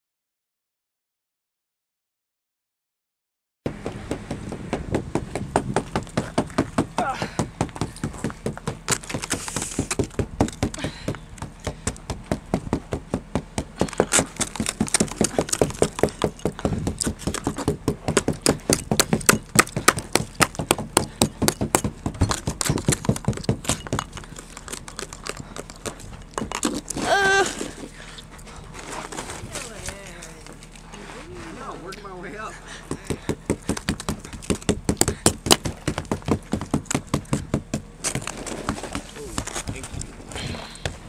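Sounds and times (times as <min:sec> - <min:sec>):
ice scraper scraping windshield: 0:09.0 - 0:10.2, 0:26.6 - 0:29.9, 0:38.0 - 0:39.9.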